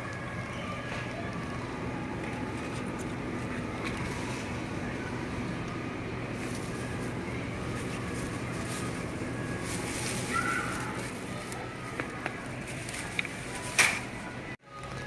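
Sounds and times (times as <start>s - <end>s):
steady low hum: 0.0s - 14.6s
plastic bag rustling: 6.3s - 14.4s.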